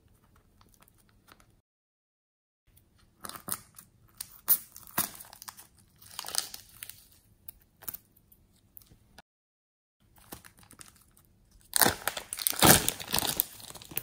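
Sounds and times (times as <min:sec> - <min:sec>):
plastic bag crinkling: 0:10.3 - 0:14.0.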